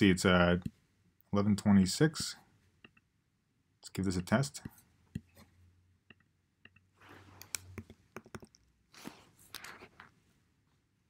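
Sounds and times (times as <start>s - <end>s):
computer mouse clicks: 6.1s - 8.6s.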